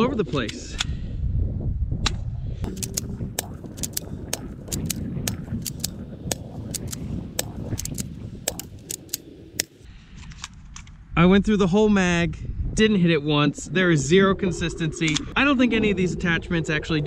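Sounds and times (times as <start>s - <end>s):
low rumble: 1.0s - 9.9s, 10.9s - 17.0s
airsoft pistol clicks and snaps: 2.0s - 11.0s.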